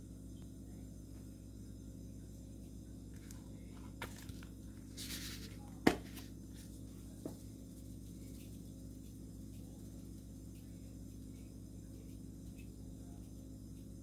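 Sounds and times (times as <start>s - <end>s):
steady low hum: 0.0s - 14.0s
spice shaking hiss: 4.0s - 14.0s
container knocking on counter: 5.8s - 6.2s.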